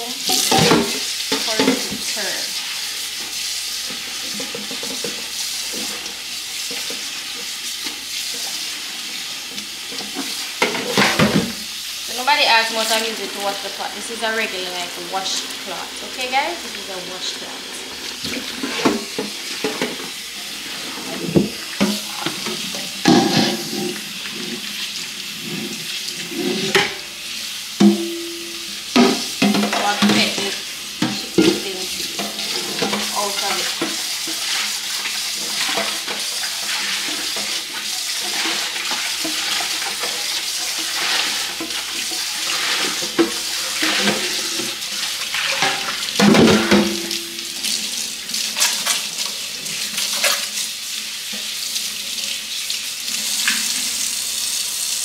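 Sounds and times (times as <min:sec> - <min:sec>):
pot scrubbed with cloth: 0:00.0 - 0:52.2
pot knocking and clanking: 0:21.3 - 0:23.9, 0:27.8 - 0:30.4, 0:45.6 - 0:47.6.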